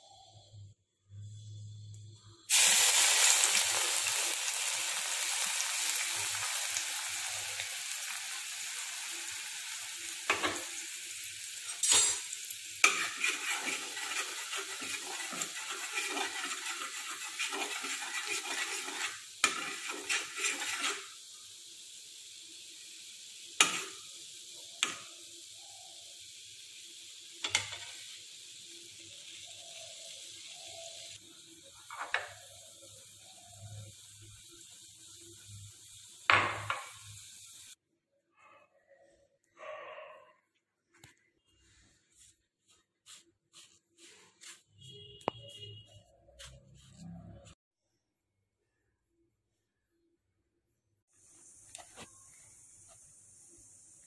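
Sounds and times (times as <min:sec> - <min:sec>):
milk sizzling in a wok: 0:00.0 - 0:37.8, 0:51.0 - 0:54.0
spoon scraping a pan: 0:10.2 - 0:10.9, 0:11.5 - 0:21.2, 0:23.6 - 0:25.1, 0:27.4 - 0:28.2, 0:31.8 - 0:32.7.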